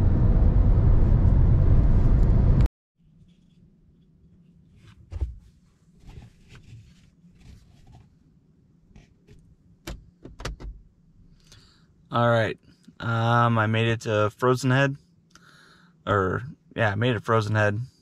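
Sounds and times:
car cabin road and engine noise: 0.0s - 2.7s
soft knocks and rustles: 4.7s - 8.1s.

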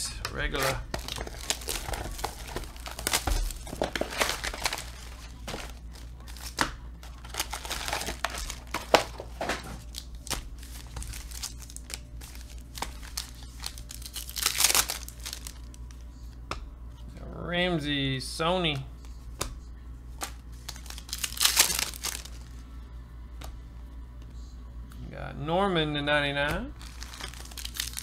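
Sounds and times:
foil wrappers crinkling and tearing: 0.4s - 16.0s, 20.2s - 22.6s, 26.7s - 28.0s.

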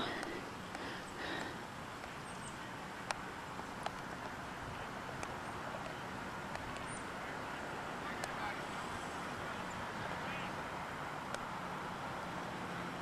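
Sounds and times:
outdoor background hiss: 0.0s - 13.0s
faint sharp clicks: 3.0s - 3.2s, 3.8s - 4.4s, 5.1s - 6.9s, 8.2s - 8.4s, 11.3s - 11.5s.

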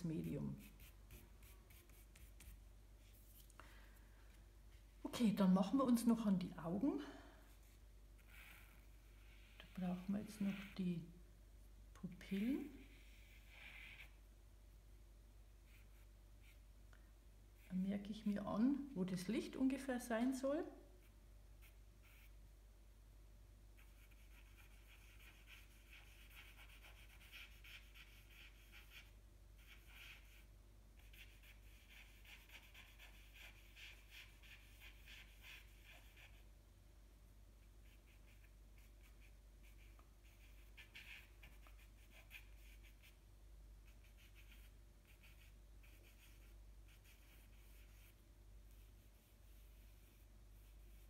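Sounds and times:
charcoal scratching on paper: 0.2s - 3.4s, 7.6s - 11.1s, 12.3s - 14.2s, 23.8s - 36.4s, 37.8s - 43.2s, 43.9s - 51.0s.

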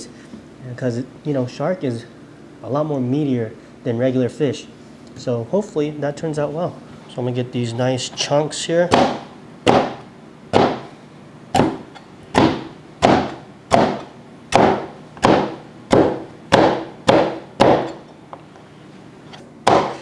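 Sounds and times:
cleaver chopping on plastic board: 8.9s - 10.9s, 11.5s - 18.0s, 19.6s - 20.0s.

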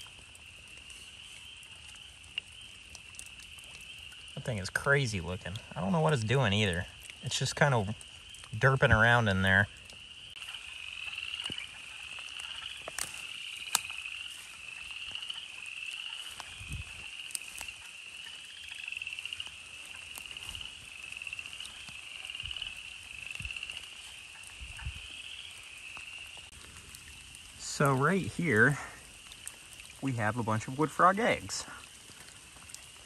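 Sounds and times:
frogs chorus chuckling: 3.6s - 26.4s
footsteps in leaf litter: 16.0s - 18.1s.

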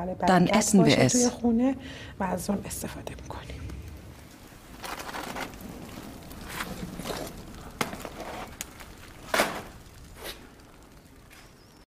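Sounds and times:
knocks and scrapes: 4.8s - 10.5s.

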